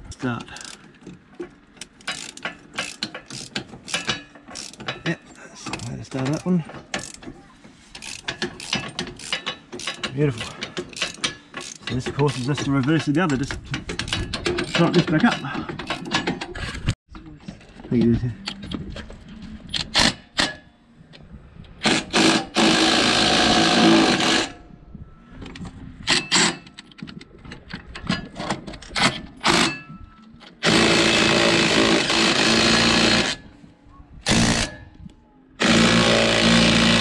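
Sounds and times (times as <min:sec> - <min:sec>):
impact driver running: 0:30.6 - 0:33.4, 0:35.6 - 0:37.0.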